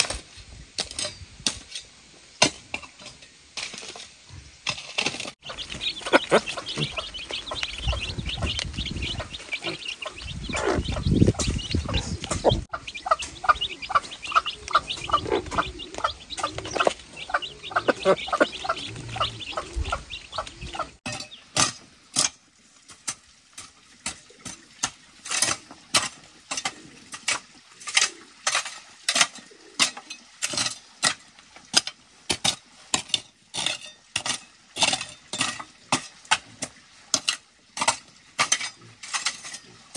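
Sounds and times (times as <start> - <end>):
hoe scraping through dry soil: 2.9 - 20.4
hen clucking: 5.4 - 21.4
chicks peeping: 5.4 - 21.5.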